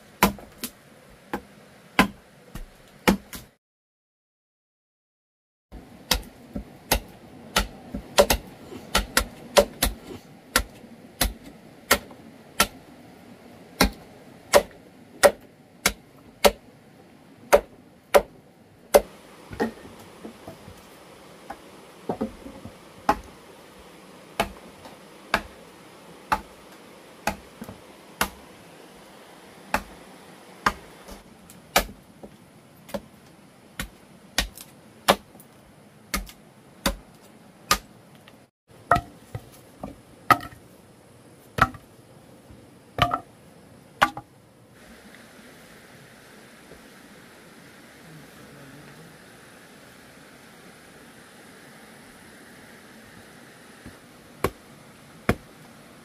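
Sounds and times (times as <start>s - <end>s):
blade chopping wood: 0.2s - 0.7s, 2.0s - 3.5s, 6.1s - 12.8s, 13.8s - 16.6s, 21.5s - 23.3s, 24.4s - 25.6s, 27.2s - 28.4s, 29.7s - 30.0s, 30.6s - 32.0s, 33.8s - 35.3s, 36.1s - 37.0s, 37.7s - 37.9s.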